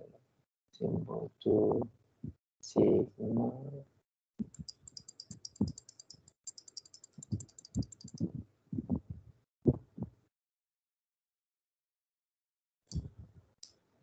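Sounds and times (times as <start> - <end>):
keyboard and mouse clicking: 4.4 - 8.3.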